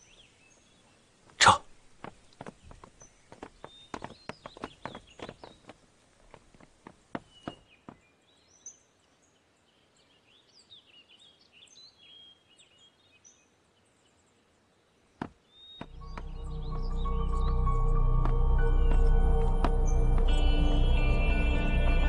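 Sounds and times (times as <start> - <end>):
faint birds chirping: 0.0 - 22.0
footsteps: 1.2 - 8.0, 15.2 - 22.0
music: 15.9 - 22.0.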